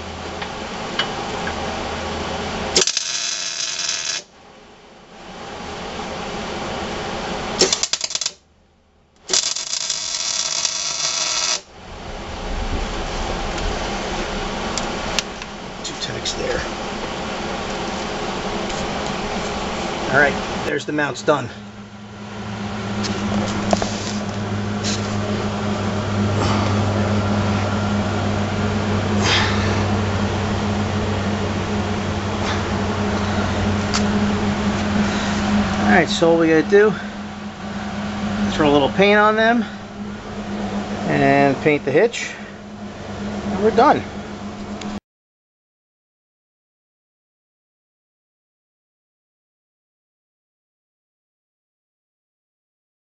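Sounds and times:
low machine hum: 0.0 - 45.0
arc welder hissing and crackling: 2.6 - 4.3, 7.5 - 8.4, 9.2 - 11.7, 23.0 - 27.6.

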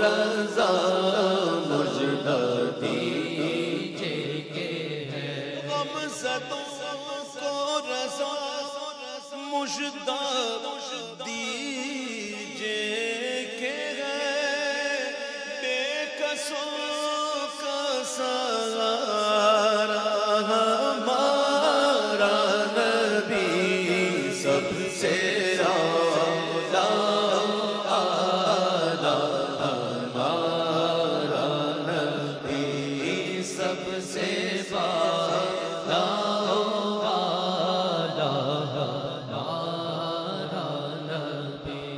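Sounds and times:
man singing unaccompanied: 0.0 - 41.9.

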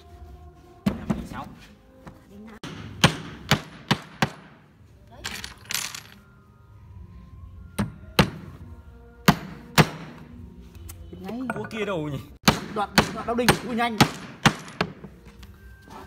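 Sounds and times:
hammer striking wood: 2.6 - 4.6, 7.8 - 8.5, 9.2 - 10.3, 12.4 - 15.1.

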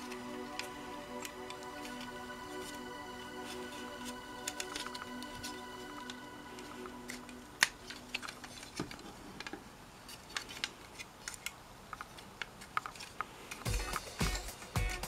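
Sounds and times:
plastic model joints clicking: 7.1 - 13.7.

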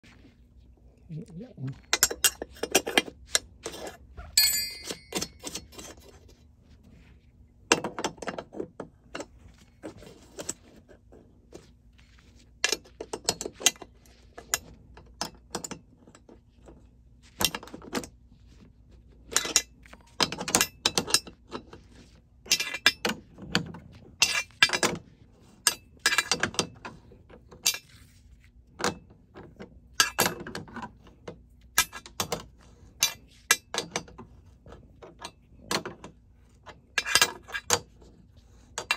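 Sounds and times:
wrenches clinking on nuts: 3.6 - 5.9, 22.5 - 23.2, 37.0 - 37.8.

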